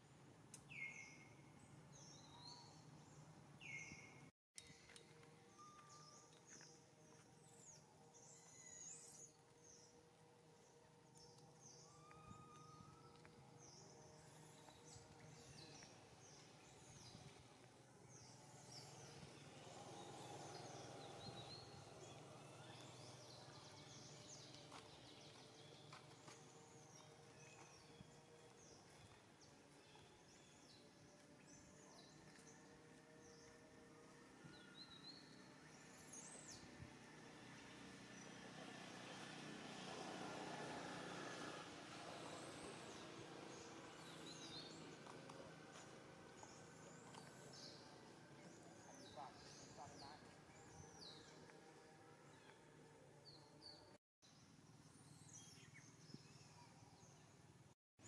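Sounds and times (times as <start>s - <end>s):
small birds chirping: 11.0s - 33.6s, 40.6s - 52.6s.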